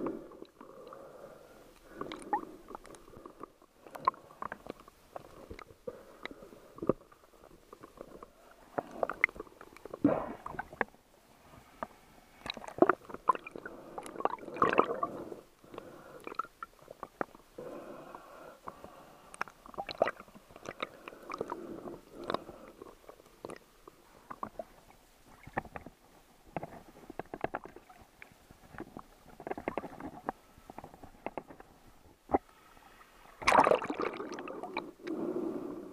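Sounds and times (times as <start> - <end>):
muffled water sloshing and gurgling: 12.3 - 18.0, 19.6 - 35.7.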